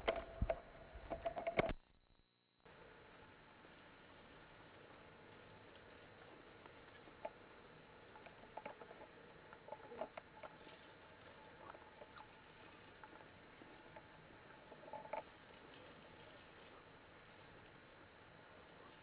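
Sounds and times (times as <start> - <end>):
steady high hiss: 0.0 - 19.0.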